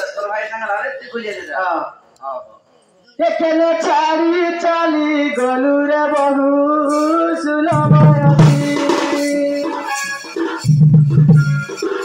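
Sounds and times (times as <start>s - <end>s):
man singing into microphone: 3.2s - 10.1s
drum strokes: 6.2s - 12.0s.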